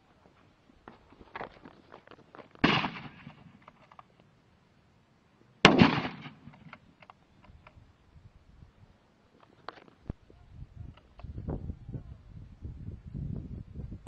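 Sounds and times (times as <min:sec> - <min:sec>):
gunshots: 0:02.6 - 0:03.6, 0:05.6 - 0:06.7.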